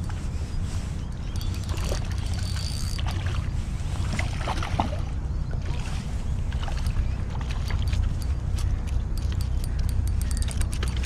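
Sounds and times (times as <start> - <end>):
small clicks and ticks: 7.7 - 11.0.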